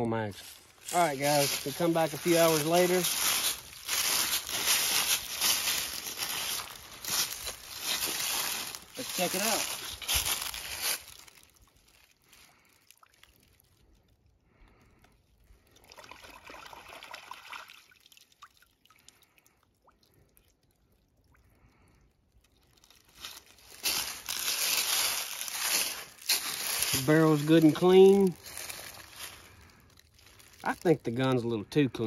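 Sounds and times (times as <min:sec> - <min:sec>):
puddle water sloshing: 0:00.8 - 0:13.8, 0:22.4 - 0:30.9.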